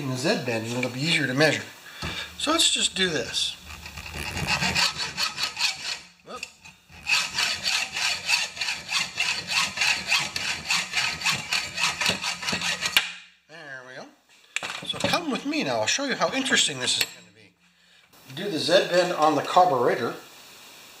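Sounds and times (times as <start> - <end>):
hacksaw cutting metal rod: 3.6 - 13.2.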